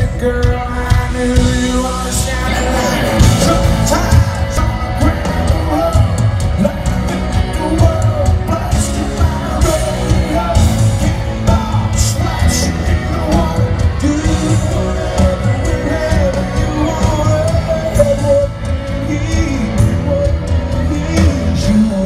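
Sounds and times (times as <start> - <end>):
lead singer singing: 0.0 - 22.0
live country band: 0.0 - 22.0
audience shouting: 2.3 - 22.0.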